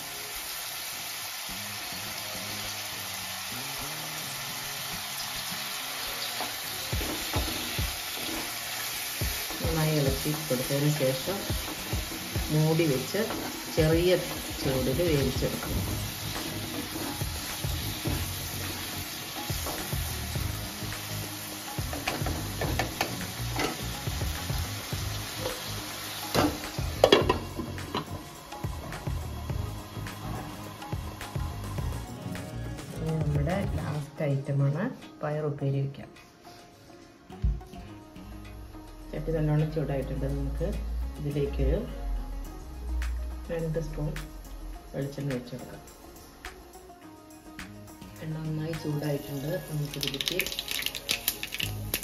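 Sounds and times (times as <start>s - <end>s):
masala sizzling in pan: 0.0s - 34.8s, 44.9s - 52.0s
wooden spatula scraping a pan: 7.0s - 8.8s.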